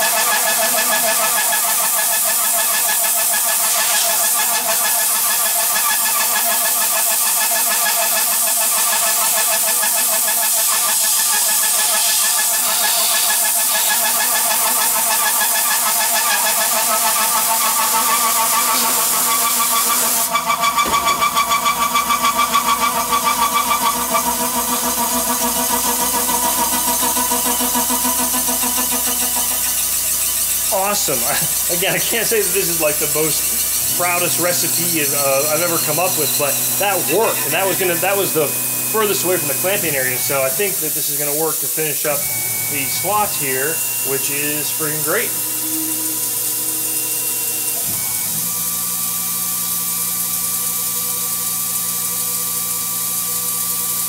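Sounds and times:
milling cutter whining: 0:00.0 - 0:54.0
compressed air hissing: 0:23.5 - 0:46.4.

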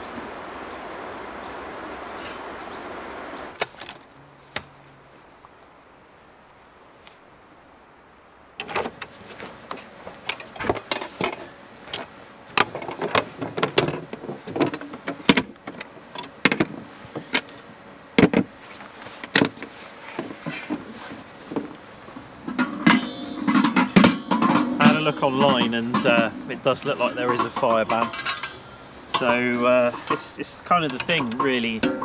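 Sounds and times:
folding table clicks and knocks: 0:12.6 - 0:17.5, 0:18.2 - 0:18.5, 0:19.2 - 0:20.9.

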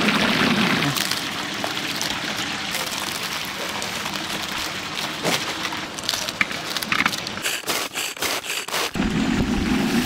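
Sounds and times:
chicken deep-frying in oil: 0:00.0 - 0:07.4.

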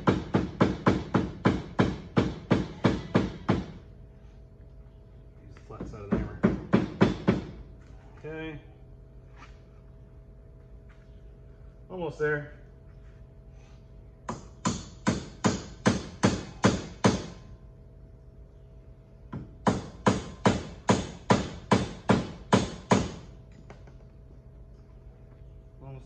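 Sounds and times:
hammer strikes on metal bushing: 0:14.2 - 0:17.4.

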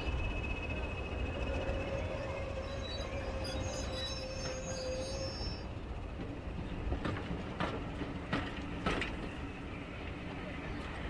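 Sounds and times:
thin squeal: 0:00.0 - 0:05.6.

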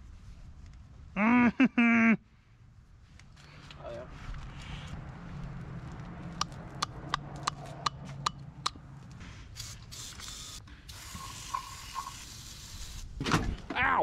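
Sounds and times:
aerosol spray can hissing: 0:09.6 - 0:13.1.

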